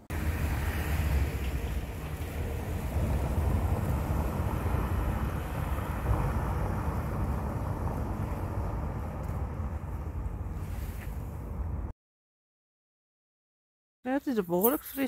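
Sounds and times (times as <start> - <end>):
van driving over cobbles: 0.0 - 11.9
wind buffeting microphone: 0.3 - 11.9.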